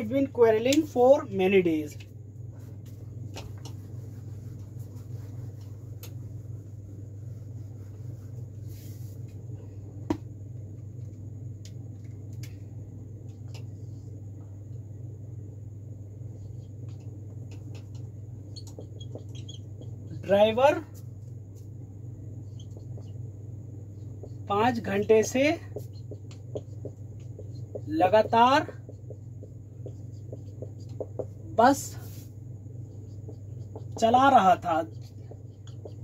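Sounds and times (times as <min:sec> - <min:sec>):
low room hum: 0:00.0 - 0:36.0
duster wiping a whiteboard: 0:03.7 - 0:09.2, 0:23.9 - 0:36.0
marker tapping on whiteboard: 0:16.8 - 0:20.0, 0:25.2 - 0:31.4, 0:33.1 - 0:34.3, 0:34.9 - 0:36.0.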